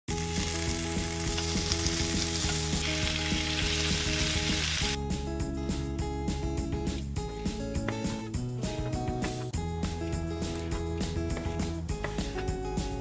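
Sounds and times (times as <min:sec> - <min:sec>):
food sizzling: 0:00.1 - 0:05.0
soft guitar music: 0:00.1 - 0:13.0.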